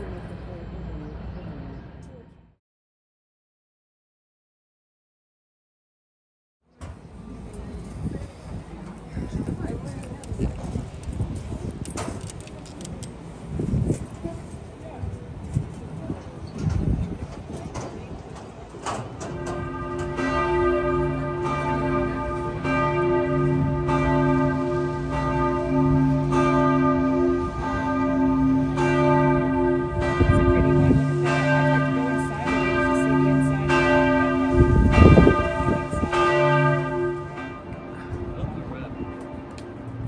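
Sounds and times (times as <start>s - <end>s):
wind rumbling on microphone: 6.8s - 40.0s
church bells pealing: 19.0s - 40.0s.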